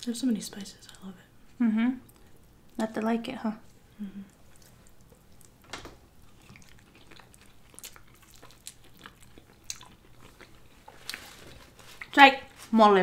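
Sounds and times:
wet chewing and lip smacks: 4.3s - 5.6s, 6.2s - 12.2s.

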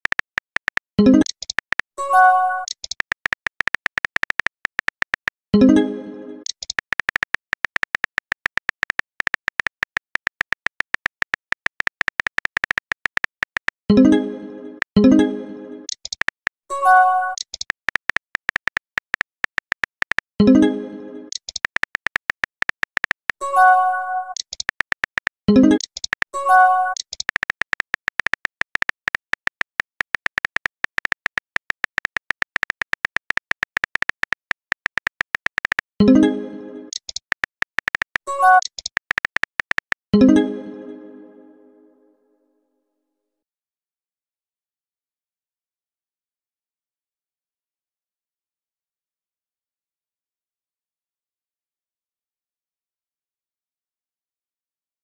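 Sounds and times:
phone keyboard typing clicks: 0.0s - 5.7s, 6.4s - 14.0s, 15.9s - 16.7s, 17.3s - 20.6s, 21.3s - 36.3s, 36.9s - 40.3s.

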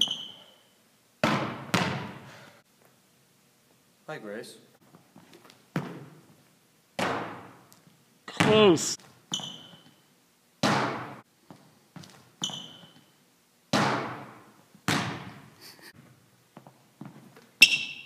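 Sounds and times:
sneakers squeaking on floor: 0.0s - 2.1s, 8.4s - 10.1s, 10.8s - 13.2s, 16.6s - 18.0s
basketball bouncing on hardwood floor: 1.2s - 2.2s, 5.7s - 6.2s, 7.0s - 7.6s, 8.4s - 8.7s, 10.6s - 13.0s, 13.7s - 15.4s.

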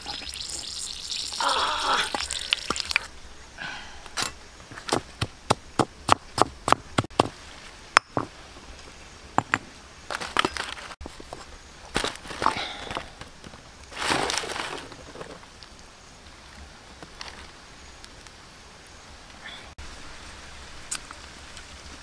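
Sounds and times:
frying sizzle: 0.0s - 3.1s
pestle pounding in stone mortar: 4.9s - 7.3s.

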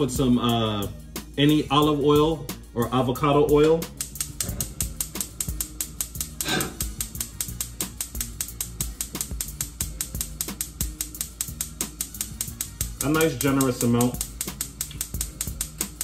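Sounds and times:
gas igniter clicking rapidly: 3.5s - 16.0s.

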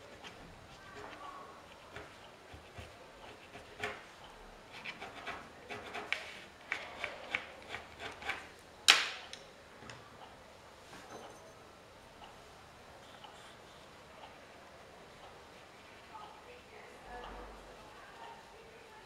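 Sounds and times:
drawing stick scratching paper: 1.8s - 4.0s, 4.7s - 8.5s.

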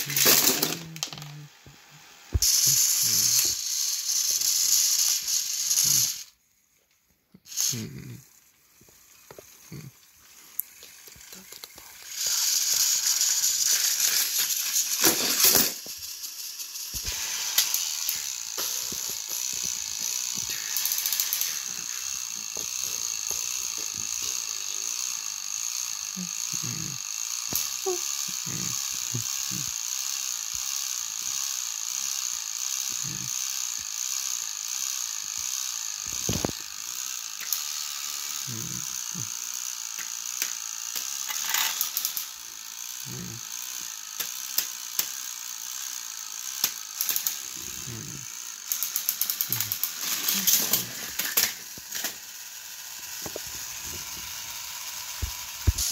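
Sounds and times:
toy train motors whirring: 0.0s - 55.9s
scattered clicks: 46.6s - 47.4s.

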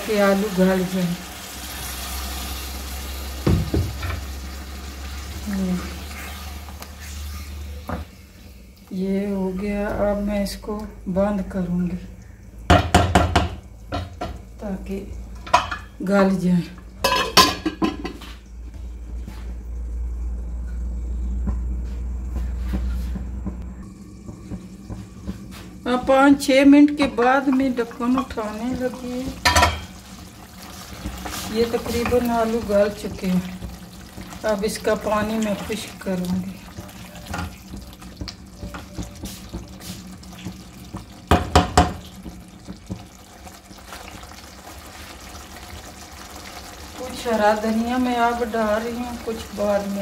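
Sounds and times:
spatula knocking on metal pot: 12.7s - 14.4s, 40.9s - 43.0s
low rumble from covered pot: 15.2s - 50.0s
simmering liquid sloshing and bubbling: 23.8s - 25.9s, 27.5s - 47.0s.

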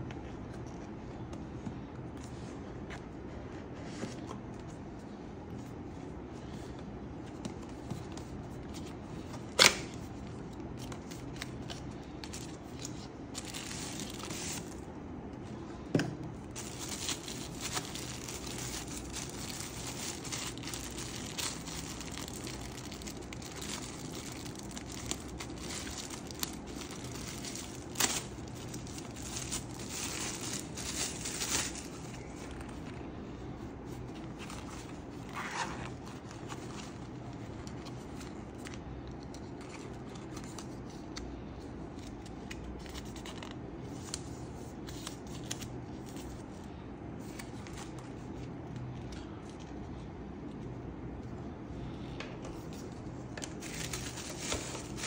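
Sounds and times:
packaging tearing and crinkling: 12.3s - 14.8s, 16.5s - 32.9s.

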